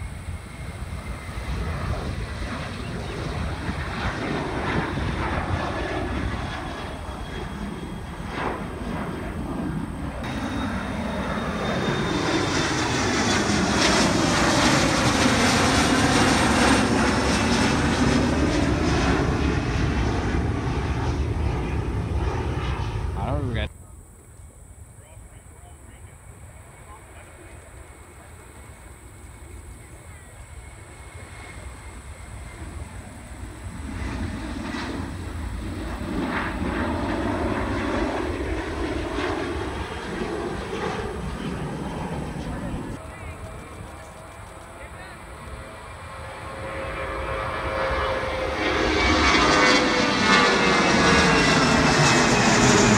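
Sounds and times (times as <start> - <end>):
jet airliner rumble overhead: 0.0 - 52.9.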